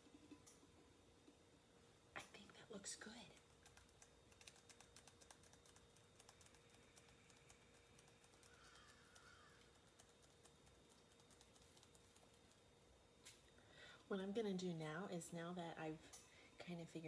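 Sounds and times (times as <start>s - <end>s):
brush ticking on tumbler: 3.2s - 12.7s.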